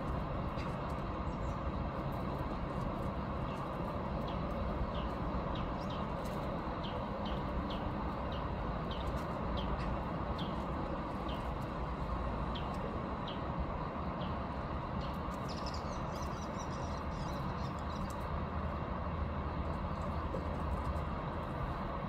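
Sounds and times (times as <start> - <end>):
outdoor background rumble: 0.0 - 22.0
small bird chirping: 15.0 - 18.2.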